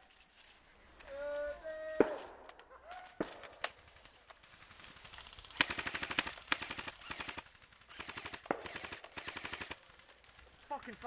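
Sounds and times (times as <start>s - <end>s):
airsoft rifle firing bursts: 3.2s - 10.6s.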